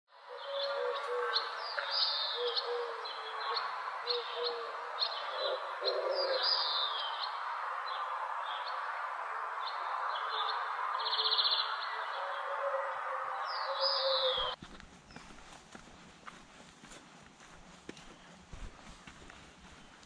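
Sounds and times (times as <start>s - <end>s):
birds chirping and whistling: 0.3s - 8.0s, 10.1s - 15.2s.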